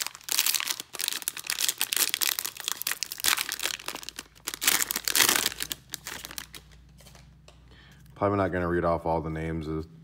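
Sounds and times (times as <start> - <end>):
plastic wrapper crinkling: 0.0 - 7.3.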